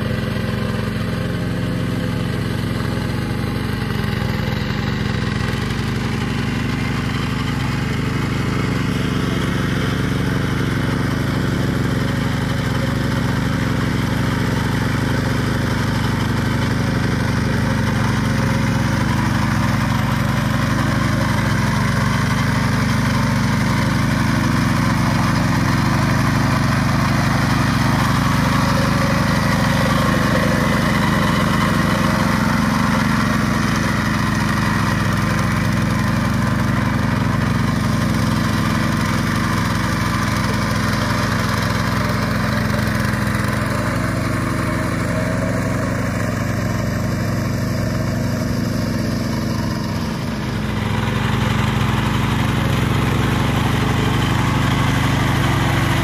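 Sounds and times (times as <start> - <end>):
diesel tractor engine running: 0.0 - 56.0.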